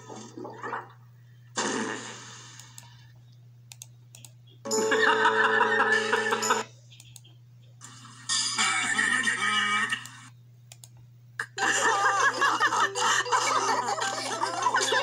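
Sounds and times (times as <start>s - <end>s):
low electrical hum: 0.0s - 15.0s
cartoon characters laughing: 4.7s - 6.7s, 8.3s - 10.3s, 11.4s - 15.0s.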